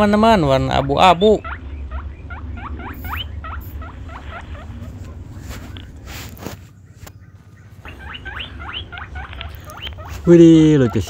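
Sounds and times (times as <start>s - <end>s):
low hum: 0.0s - 11.0s
toy rising electronic squeaks: 1.0s - 4.8s
soft rustle: 3.7s - 8.1s, 9.2s - 10.4s.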